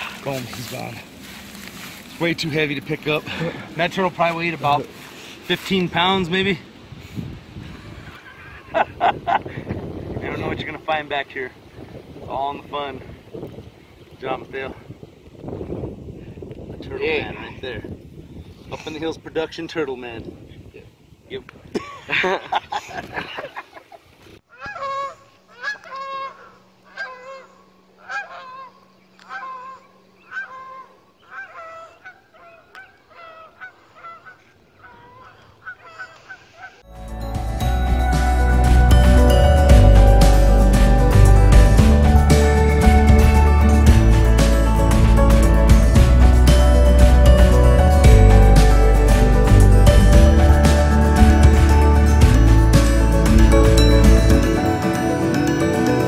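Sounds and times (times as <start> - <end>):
geese honking: 24.5 - 36.9
music with deep bass: 36.9 - 56.0.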